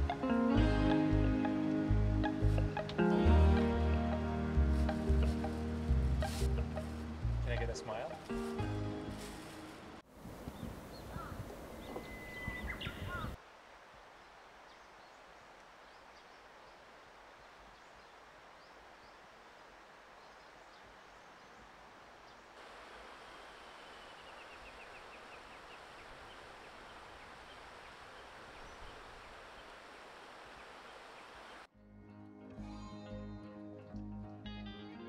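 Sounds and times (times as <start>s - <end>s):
open air hiss: 12.7s - 31.7s.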